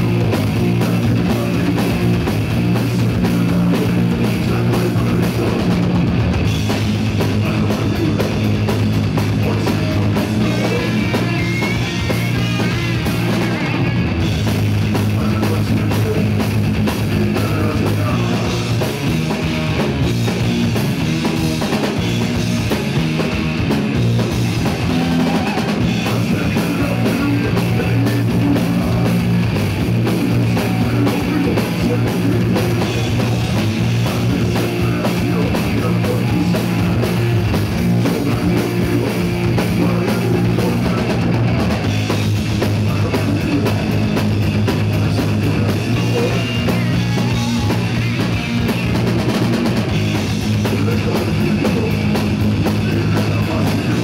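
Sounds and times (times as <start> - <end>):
drum kit beat: 0.0 - 54.0
electric bass: 0.0 - 54.0
electric guitar: 0.0 - 54.0.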